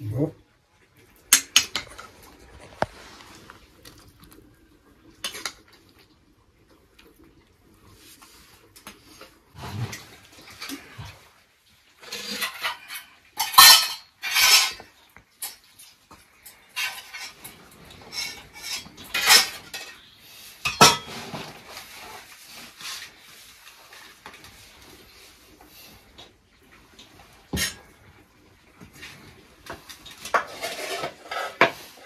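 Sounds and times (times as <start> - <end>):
metal dishes clattering: 12.0 - 15.7, 16.4 - 23.2, 27.4 - 28.0, 29.0 - 32.0.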